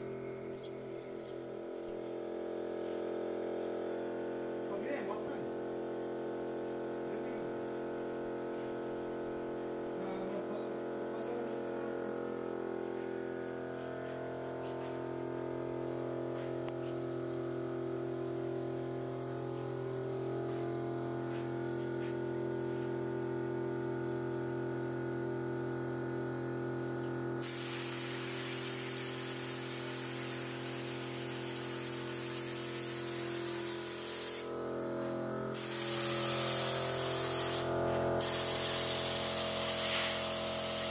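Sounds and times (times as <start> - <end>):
steady hum of held tones: 0.0 - 27.4
loud spraying hiss: 27.4 - 34.6, 35.5 - 40.9.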